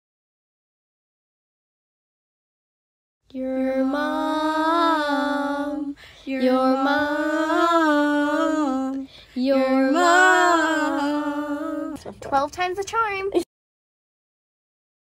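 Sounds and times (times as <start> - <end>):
girl singing held notes: 3.3 - 12.2.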